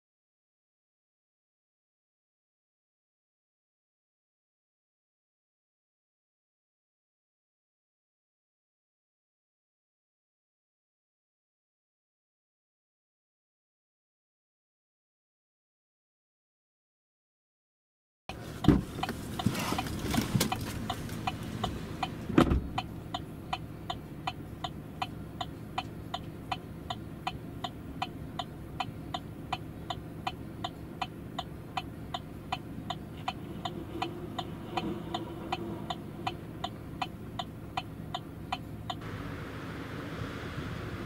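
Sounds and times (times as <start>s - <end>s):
low steady hum: 18.3s - 41.0s
turn signal ticking: 18.3s - 41.0s.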